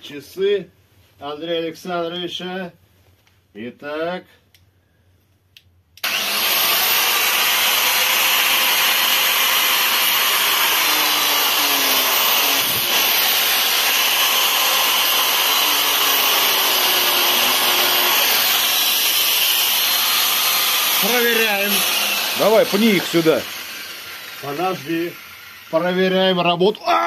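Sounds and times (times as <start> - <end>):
angle grinder grinding metal: 6.0 - 26.6.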